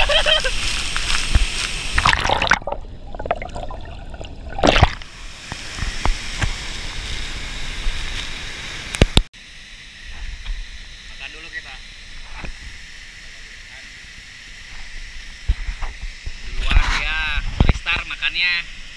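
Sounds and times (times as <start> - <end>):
water churning and splashing: 1.2 - 7.4
loud splash: 1.9 - 5.2.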